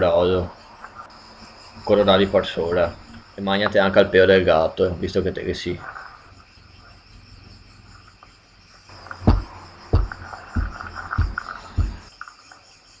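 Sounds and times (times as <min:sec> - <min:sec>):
faint high chirping: 0:00.0 - 0:13.0
low thumps: 0:08.9 - 0:12.1.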